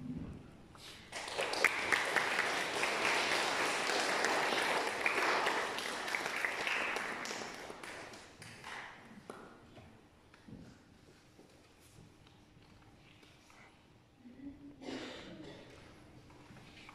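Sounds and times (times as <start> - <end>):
congregation applauding: 1.1 - 8.9.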